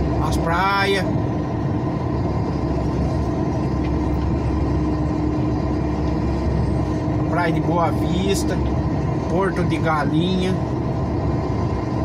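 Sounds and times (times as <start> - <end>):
constant hum: 0.0 - 12.0
diesel truck engine drone: 0.0 - 12.0.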